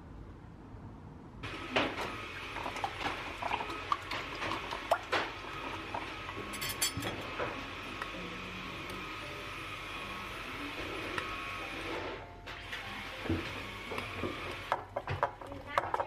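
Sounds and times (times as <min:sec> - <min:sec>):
whisk clinking against glass bowl: 0:06.5 - 0:07.1.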